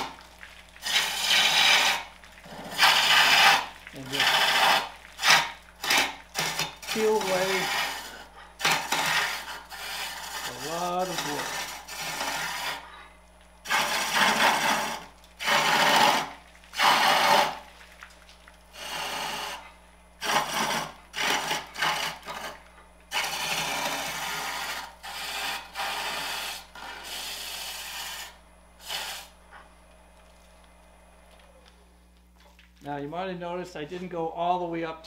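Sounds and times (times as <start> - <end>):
faint steady hum: 0.0 - 35.0
lathe chisel cutting wood: 0.8 - 12.9, 13.7 - 17.6, 18.8 - 19.6, 20.2 - 29.0.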